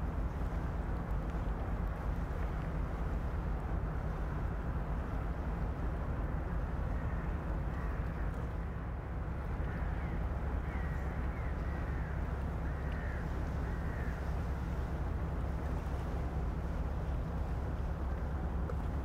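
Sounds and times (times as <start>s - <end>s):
barge engine rumble: 0.0s - 19.0s
crows cawing: 9.6s - 14.3s.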